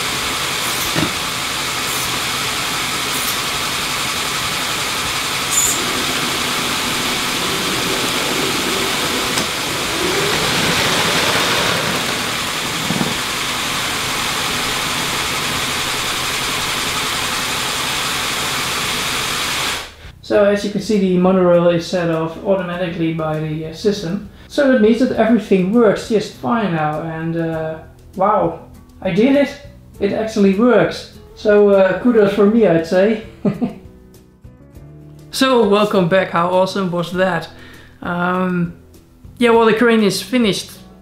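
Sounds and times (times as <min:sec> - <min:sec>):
toy motors and gears whirring: 0:00.0 - 0:19.8.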